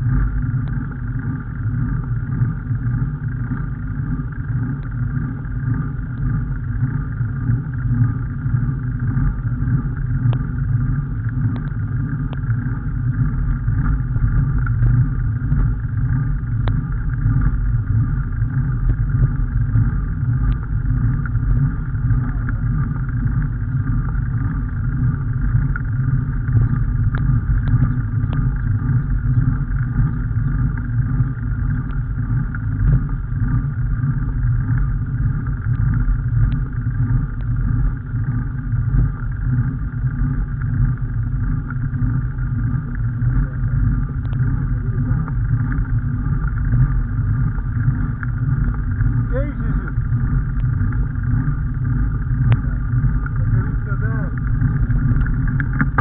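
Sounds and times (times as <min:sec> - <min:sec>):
wind rumble on microphone: 0:00.0 - 0:56.0
faint clicks: 0:11.5 - 0:12.5, 0:26.5 - 0:30.9, 0:44.2 - 0:44.4.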